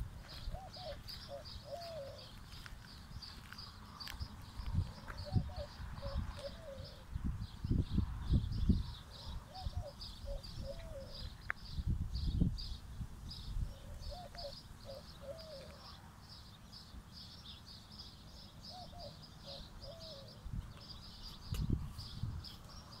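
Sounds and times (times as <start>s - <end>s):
dove cooing: 0.0s - 2.7s, 5.0s - 7.2s, 9.0s - 11.4s, 13.6s - 16.1s, 18.7s - 21.1s.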